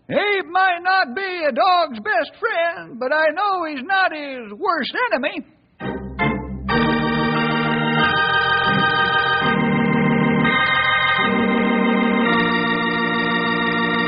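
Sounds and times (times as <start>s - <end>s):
organ playing held chords: 5.8s - 14.0s.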